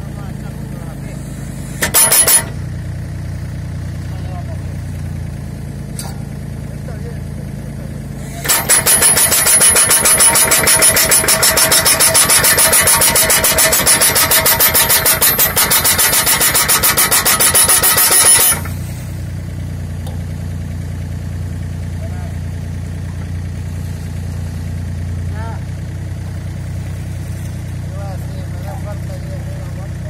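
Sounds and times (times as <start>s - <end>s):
excavator engine idling: 0.0s - 30.0s
hydraulic hammer pounding post: 1.6s - 2.7s, 8.2s - 19.1s.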